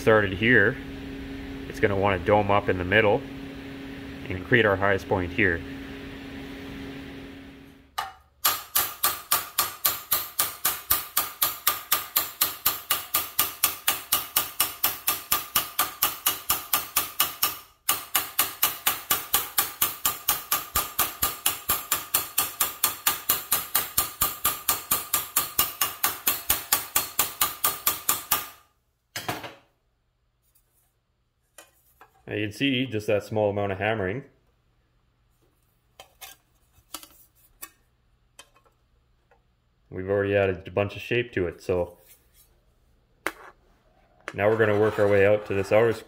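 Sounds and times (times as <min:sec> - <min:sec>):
hammer striking sheet metal: 0:08.0 - 0:28.6.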